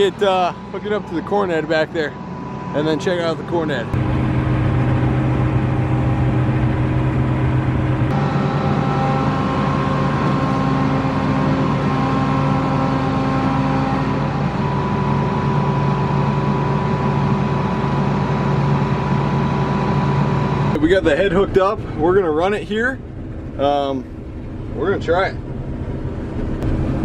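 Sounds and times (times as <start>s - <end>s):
combine harvester engine humming: 0.0s - 27.0s.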